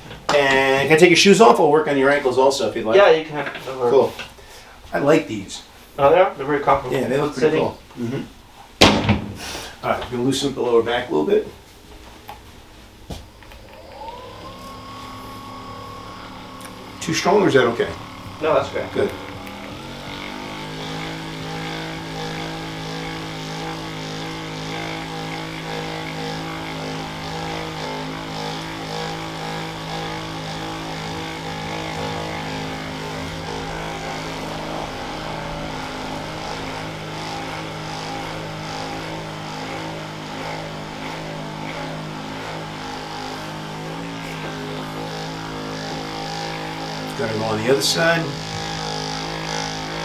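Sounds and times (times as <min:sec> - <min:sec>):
massage gun motor humming: 0:10.4 - 0:50.0.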